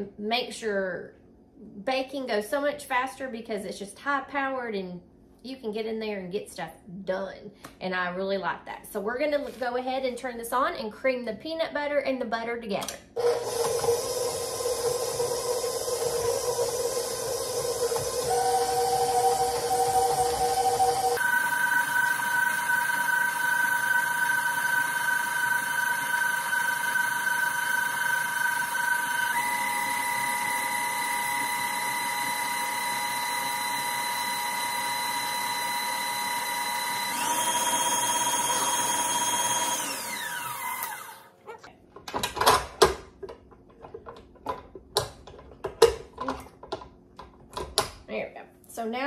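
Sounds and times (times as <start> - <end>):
stand mixer motor whine: 13.2 - 41.3.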